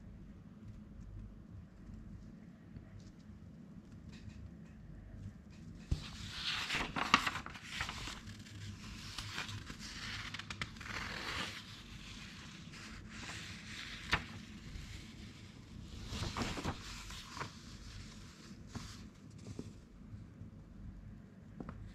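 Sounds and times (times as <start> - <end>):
paper crackling: 5.9 - 19.6
magazine pages being turned: 5.9 - 19.8.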